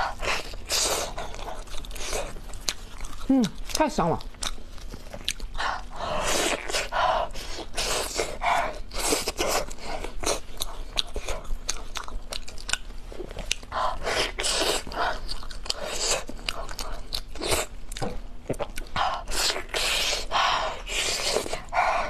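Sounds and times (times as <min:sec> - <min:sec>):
person chewing food: 0:00.0 - 0:22.0.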